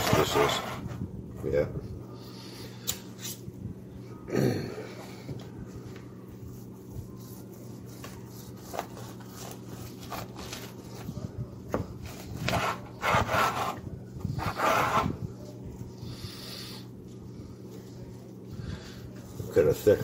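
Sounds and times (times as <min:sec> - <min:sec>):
knife sawing through roast crust: 0:12.4 - 0:13.8, 0:14.4 - 0:15.2.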